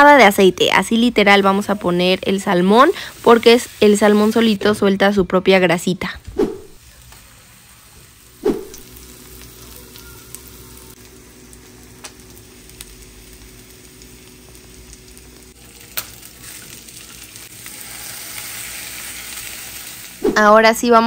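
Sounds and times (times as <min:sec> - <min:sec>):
fish sizzling in a pan: 0:06.9 - 0:20.2.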